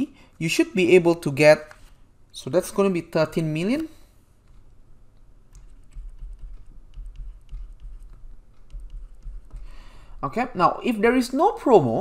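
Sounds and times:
stylus clicking on tablet screen: 3.4s - 10.2s
hand bumping on surface: 5.6s - 10.1s.

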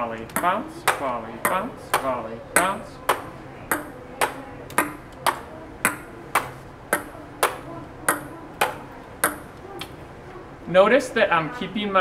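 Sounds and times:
ping pong ball clicks: 0.3s - 9.9s.

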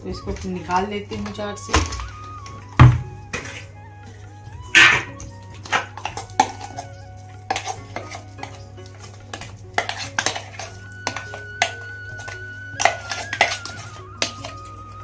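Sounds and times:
background music: 0.0s - 15.0s
metal spoon scraping steel jar: 4.7s - 15.0s.

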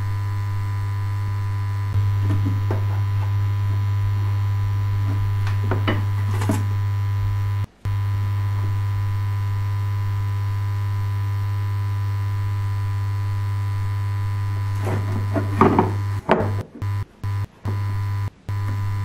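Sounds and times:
low electrical hum: 0.0s - 19.0s
rustling scrapes: 14.6s - 16.1s.

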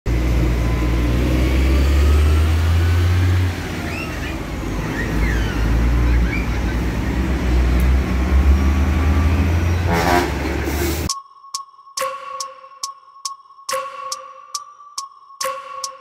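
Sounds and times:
road traffic noise: 0.0s - 11.1s
heavy truck engine droning: 0.1s - 11.1s.

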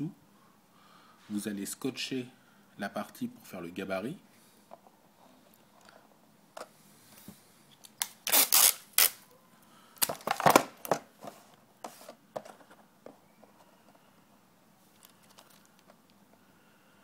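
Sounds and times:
adhesive tape pulled and torn: 7.8s - 9.3s.

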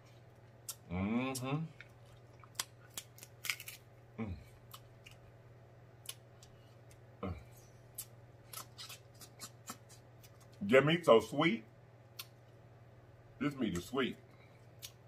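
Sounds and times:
faint low hum: 0.0s - 15.0s
mouth eating sounds: 0.6s - 2.8s, 7.2s - 10.4s
crab shell clicking and snapping: 1.8s - 3.8s.

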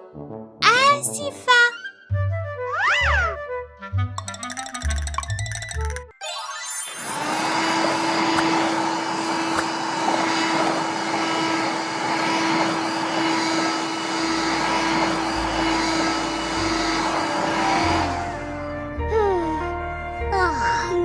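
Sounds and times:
toy vacuum cleaner motor whir: 6.9s - 18.5s.

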